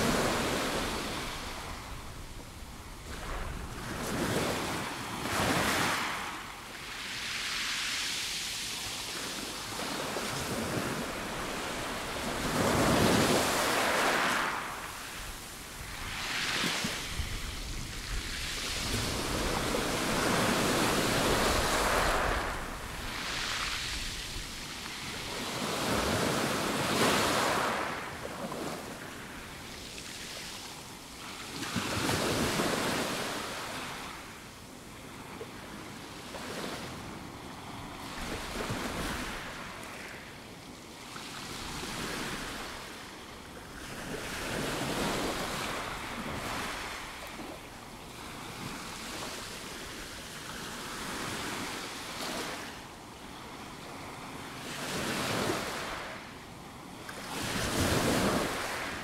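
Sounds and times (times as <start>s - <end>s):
waves washing up pebble beach: 7.0s - 28.8s.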